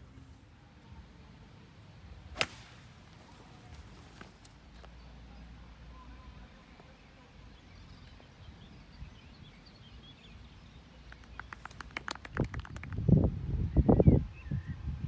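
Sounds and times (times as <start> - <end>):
birdsong chirps: 3.3 - 15.0.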